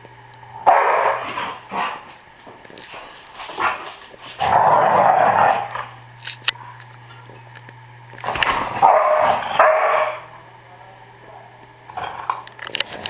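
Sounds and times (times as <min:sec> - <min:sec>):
dog barking: 0:00.7 - 0:01.3, 0:08.8 - 0:10.3.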